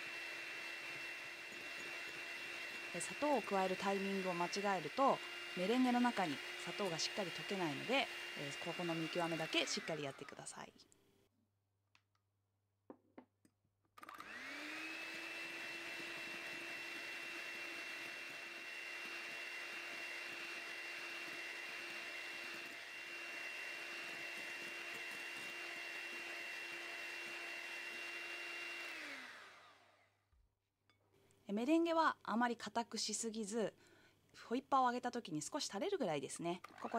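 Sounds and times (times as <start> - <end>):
electric hand mixer whine: 0.0 - 10.6, 14.0 - 30.2, 36.6 - 36.9.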